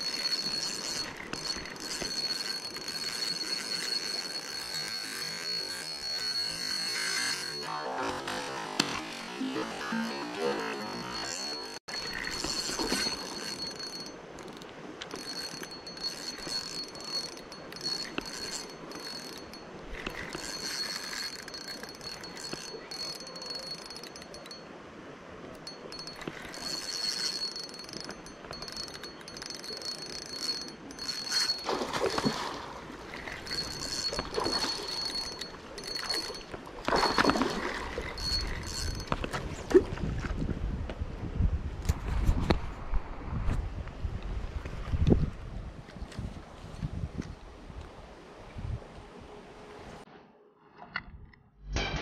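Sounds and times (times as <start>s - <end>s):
fishing reel gear whine: 0.0s - 24.7s, 25.5s - 39.8s.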